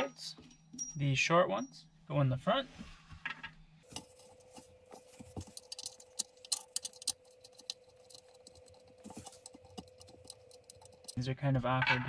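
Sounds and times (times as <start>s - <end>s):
faint steady hum: 0.0s - 12.0s
bolts and plastic clicking: 3.9s - 11.2s.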